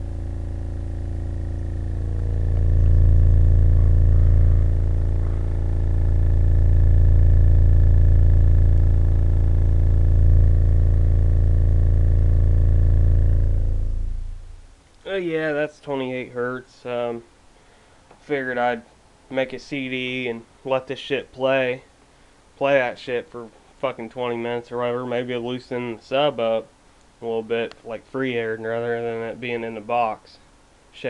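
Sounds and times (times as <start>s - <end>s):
subwoofer deep test tone drone: 0.0s - 15.6s.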